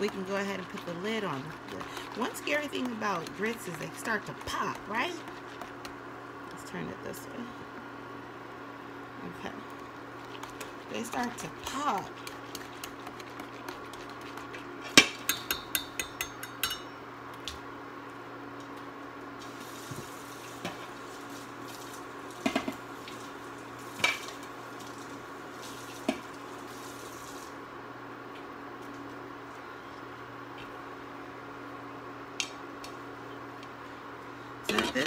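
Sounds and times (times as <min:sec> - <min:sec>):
wire whisk stirring in a pan: 0:00.0 - 0:06.1, 0:09.8 - 0:16.8
thick grits bubbling and popping: 0:00.0 - 0:07.2, 0:09.2 - 0:16.0
induction cooktop hum: 0:00.0 - 0:35.0
whisk tapping pan rim: 0:15.0 - 0:16.9.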